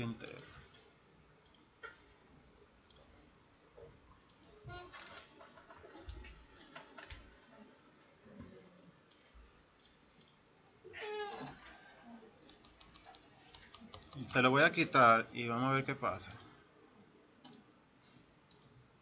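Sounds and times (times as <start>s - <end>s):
mouse and keyboard clicks: 12.4s - 14.4s.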